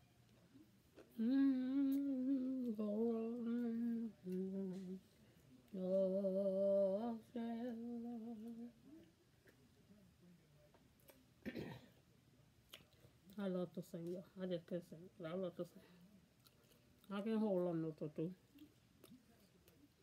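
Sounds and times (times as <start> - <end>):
woman humming: 1.2 - 5.0.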